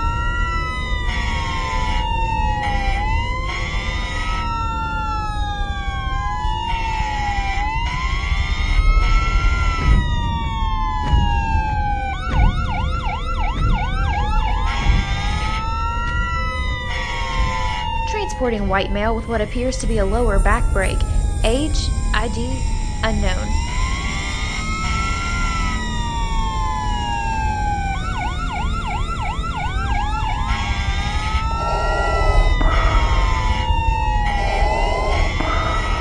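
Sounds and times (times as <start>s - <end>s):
ambulance siren wailing: 0.0s - 36.0s
low rumble: 7.6s - 36.0s.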